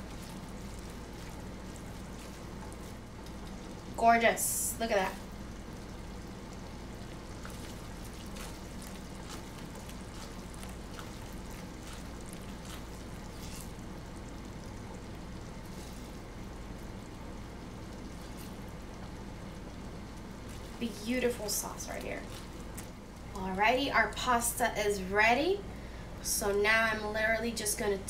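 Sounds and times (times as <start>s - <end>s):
spatula stirring sauce: 0.0s - 3.9s, 6.5s - 14.8s, 22.2s - 23.0s
sauce bubbling in a saucepan: 0.0s - 24.7s
steady low hum: 0.0s - 28.0s.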